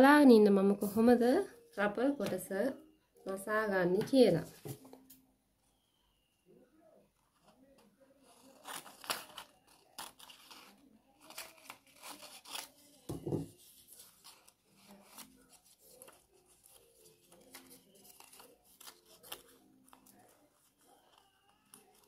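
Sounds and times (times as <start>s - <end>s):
scissors snipping fabric: 8.4s - 12.9s.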